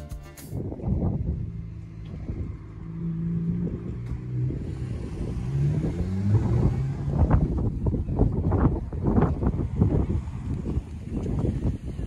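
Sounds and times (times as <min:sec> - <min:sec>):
vehicle engine accelerating: 0:00.6 - 0:12.0
wind buffeting microphone: 0:00.6 - 0:12.0.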